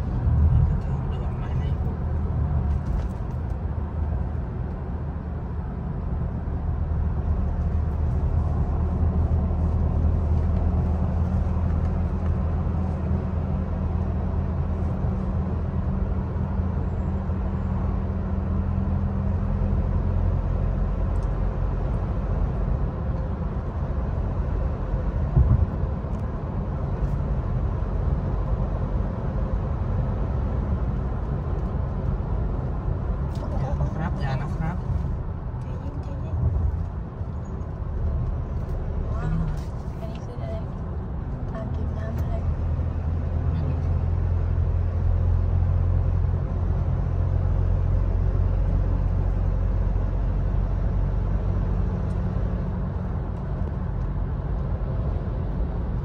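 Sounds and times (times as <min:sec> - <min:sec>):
car engine and road noise: 0:00.0 - 0:56.0
brief thump: 0:25.3 - 0:25.8.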